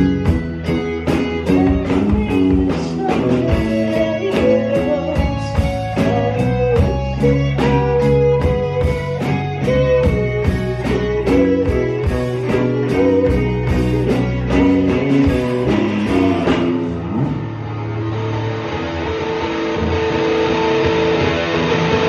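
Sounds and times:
drums keeping a beat: 0:00.0 - 0:17.6
bass guitar: 0:00.0 - 0:22.0
electric guitar melody: 0:00.0 - 0:22.0.

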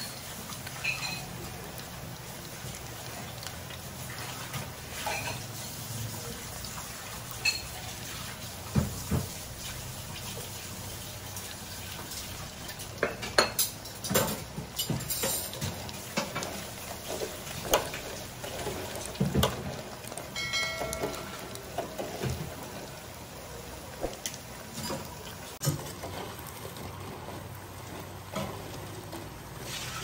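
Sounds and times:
food deep-frying in hot oil: 0:00.0 - 0:30.0
metal skimmer clinking: 0:20.2 - 0:21.7.

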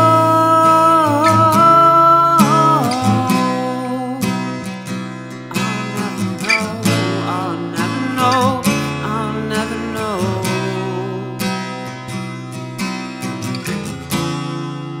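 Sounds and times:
man singing: 0:00.0 - 0:04.6, 0:05.5 - 0:11.8, 0:13.5 - 0:14.2
acoustic guitar strumming: 0:00.0 - 0:15.0.

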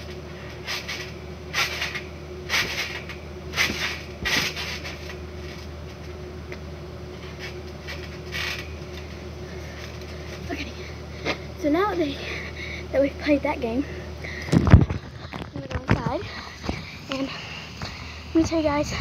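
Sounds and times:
steady low hum: 0:00.0 - 0:19.0
trampoline creaking: 0:00.0 - 0:19.0.

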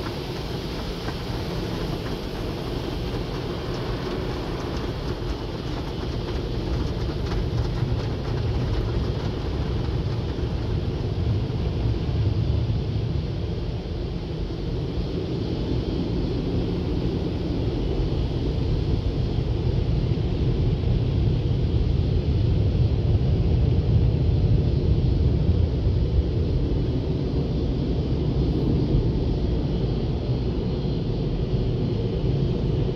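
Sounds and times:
car engine and tyres rumbling: 0:00.0 - 0:15.0.

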